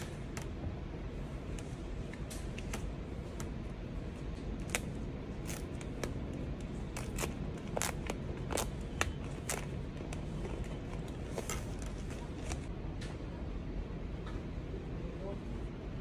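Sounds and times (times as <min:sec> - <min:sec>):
low background hum: 0:00.0 - 0:16.0
paper wrap rustling and crinkling: 0:06.6 - 0:12.7.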